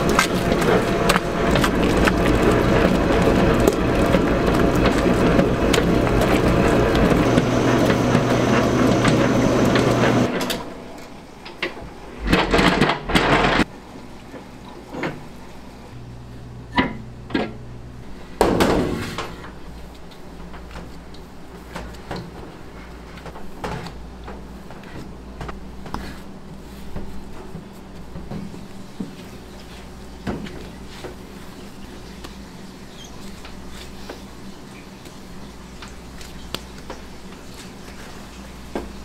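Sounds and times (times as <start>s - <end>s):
stand mixer motor humming: 0.0s - 10.3s.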